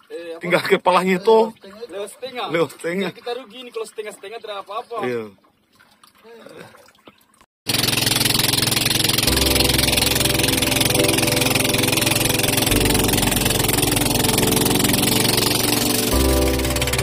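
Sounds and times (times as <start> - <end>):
boat engine running: 7.7 - 17.0.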